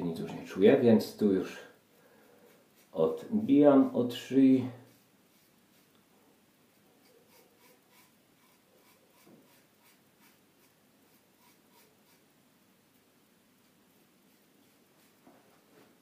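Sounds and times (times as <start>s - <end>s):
razor scraping stubble: 7.0s - 12.2s.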